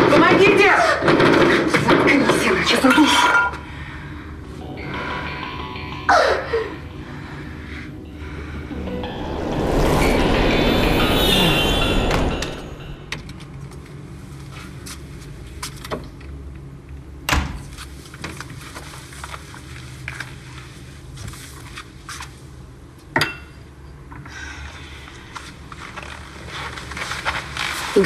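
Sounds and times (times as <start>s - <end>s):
low steady rumble: 7.0s - 14.4s.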